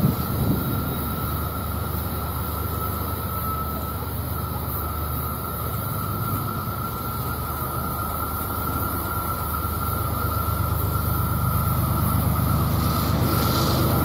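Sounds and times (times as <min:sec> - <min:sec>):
locomotive engine rumble: 0:00.0 - 0:14.0
steady high tone: 0:00.0 - 0:14.0.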